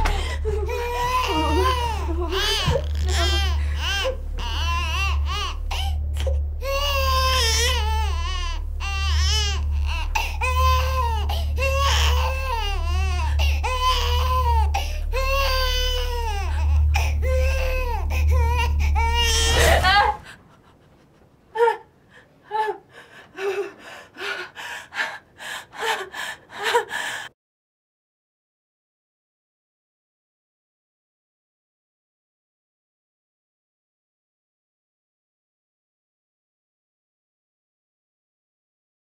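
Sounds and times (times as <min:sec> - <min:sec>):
newborn baby crying: 0:00.0 - 0:20.2
low steady rumble: 0:00.0 - 0:27.3.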